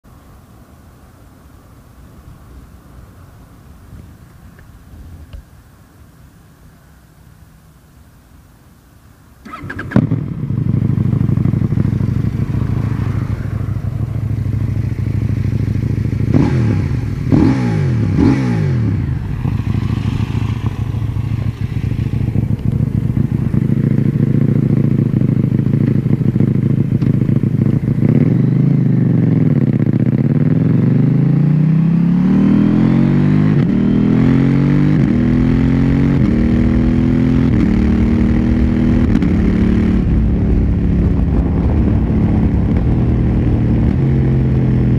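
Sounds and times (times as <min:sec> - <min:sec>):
engine throttle blips: 0:09.4 - 0:30.8, 0:36.2 - 0:44.9
motorcycle engine idling: 0:09.4 - 0:31.2
motorcycle accelerating and upshifting: 0:09.4 - 0:44.9.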